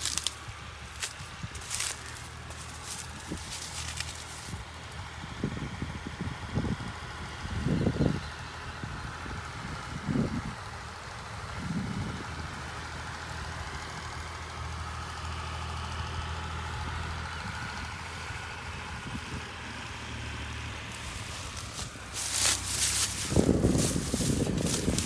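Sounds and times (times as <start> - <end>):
crackling crunches: 0.0 - 4.6, 20.9 - 25.0
engine humming: 0.0 - 25.0.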